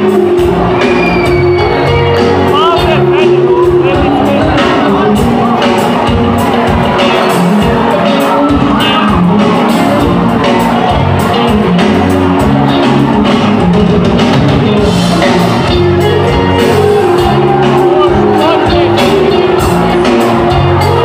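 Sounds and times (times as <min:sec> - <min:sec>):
crowd shouting along: 0:00.0 - 0:03.0, 0:03.6 - 0:13.7, 0:14.8 - 0:21.0
person singing: 0:00.0 - 0:05.7
live pop-folk band: 0:00.0 - 0:21.0.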